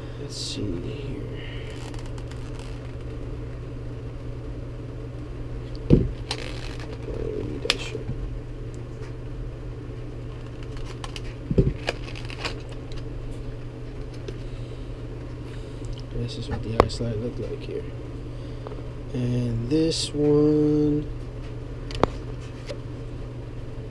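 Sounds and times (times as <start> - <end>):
steady low hum: 0.0 - 23.9
plastic package clicks and crackles: 1.7 - 3.2, 5.7 - 7.9, 10.3 - 13.1
loud knocks: 5.9 - 6.2.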